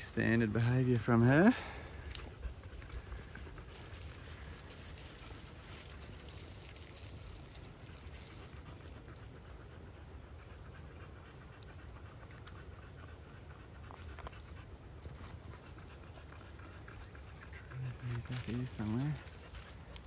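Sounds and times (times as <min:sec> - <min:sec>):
rustles on dry leaves: 0:00.0 - 0:09.6, 0:15.0 - 0:20.0
low steady rumble: 0:00.0 - 0:20.0
quiet panting: 0:00.0 - 0:20.0.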